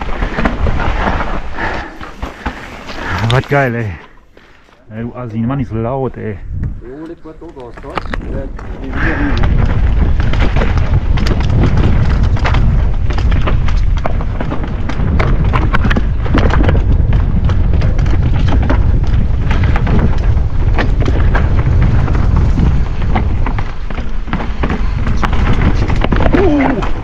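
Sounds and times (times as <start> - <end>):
wind buffeting microphone: 5.0 - 27.0
bike clattering over rocks: 7.6 - 27.0.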